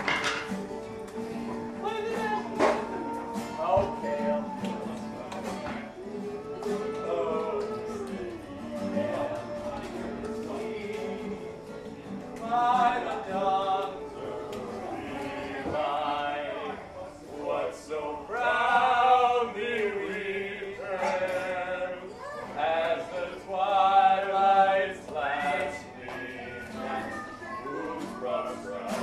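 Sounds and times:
choir singing: 1.4s - 29.0s
man singing long wavering notes: 2.9s - 11.7s.

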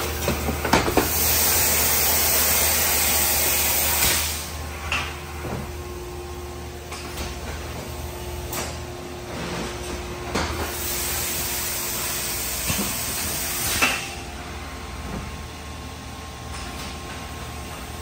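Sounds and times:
loud hiss of air: 0.9s - 4.6s, 10.6s - 14.1s.

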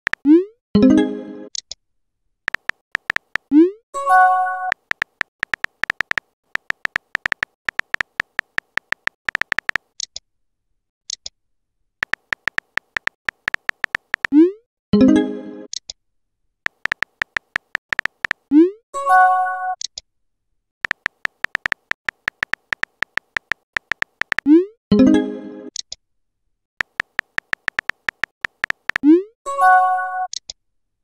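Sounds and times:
keyboard tap beeps: 2.5s - 3.7s, 4.6s - 9.8s, 12.0s - 14.4s, 16.7s - 18.4s, 20.8s - 24.5s, 26.8s - 29.1s.

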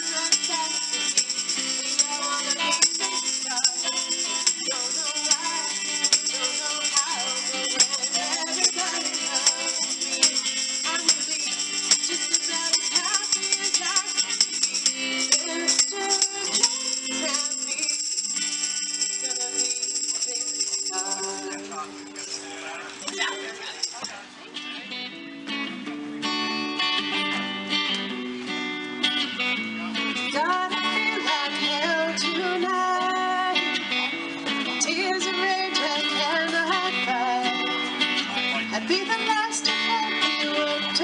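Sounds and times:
woman singing: 0.0s - 21.9s, 30.2s - 41.0s
hand percussion shaken: 0.0s - 24.2s
acoustic guitar strumming: 0.0s - 41.0s.

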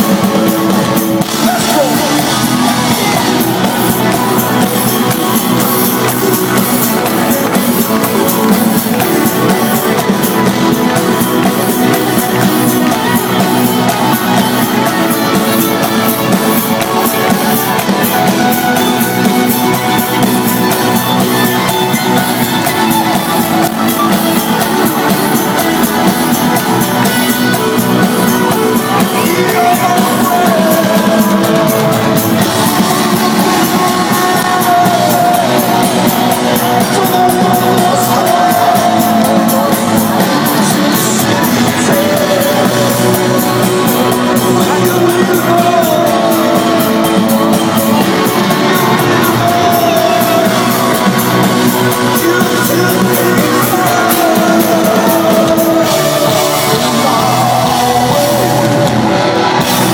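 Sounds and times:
electric guitar: 0.0s - 59.9s
keyboards: 0.0s - 59.9s
person singing: 0.0s - 59.9s
rock band playing live: 0.0s - 59.9s.

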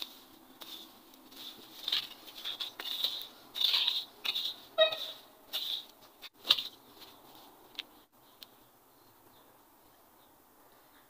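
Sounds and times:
hand tool scraping soil: 0.0s - 7.2s.

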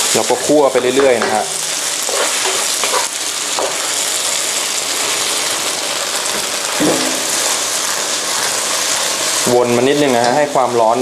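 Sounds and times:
noodles sizzling in a wok: 0.0s - 11.0s
wooden spatula scraping pan: 2.0s - 3.7s.

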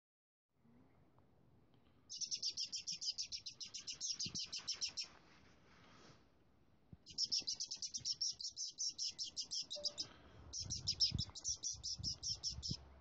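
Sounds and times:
weasel chattering: 2.1s - 5.1s, 7.1s - 12.8s.

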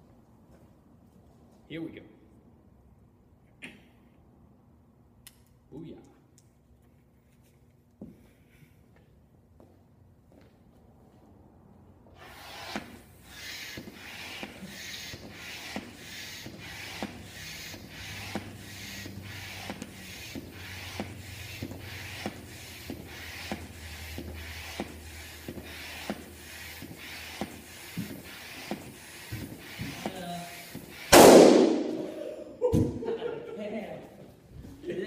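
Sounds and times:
floor air pump strokes: 12.2s - 31.2s.

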